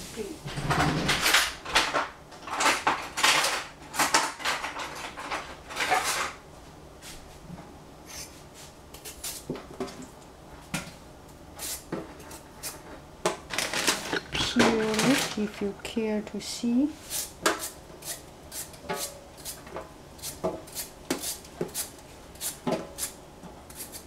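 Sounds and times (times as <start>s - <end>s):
utensils knocking and clicking: 13.3s - 15.5s.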